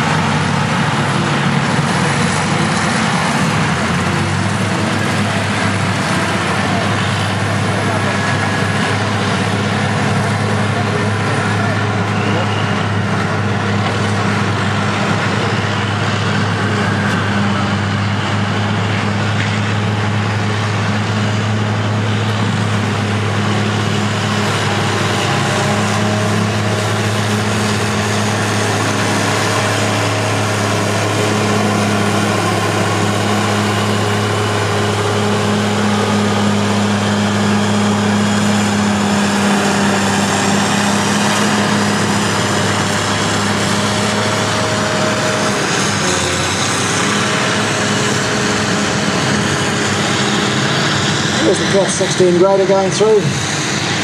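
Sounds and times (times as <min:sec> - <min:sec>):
heavy diesel engines droning: 0:00.0 - 0:54.0.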